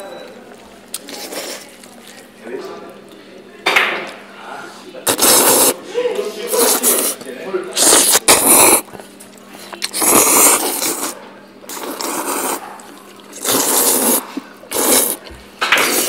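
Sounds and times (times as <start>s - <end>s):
people slurping noodles: 0.8s - 2.4s, 5.0s - 16.0s.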